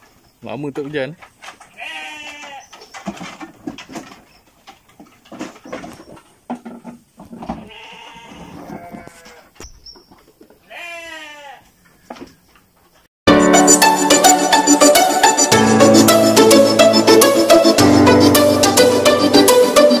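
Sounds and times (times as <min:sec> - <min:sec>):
knocks in wooden pen: 0:00.8 - 0:10.6, 0:11.8 - 0:12.9
goats bleating: 0:01.7 - 0:02.7, 0:07.6 - 0:09.5, 0:10.6 - 0:11.7.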